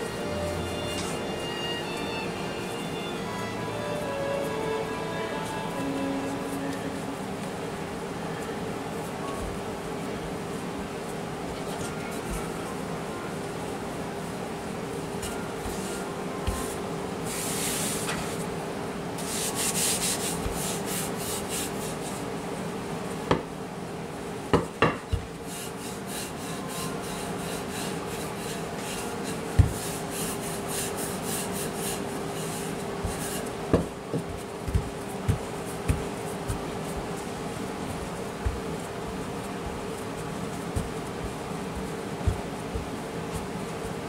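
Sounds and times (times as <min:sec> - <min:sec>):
rolling pin scraping dough: 0:00.0 - 0:07.6, 0:15.2 - 0:18.5, 0:19.2 - 0:22.3, 0:25.1 - 0:44.0
steady low hum: 0:25.1 - 0:44.0.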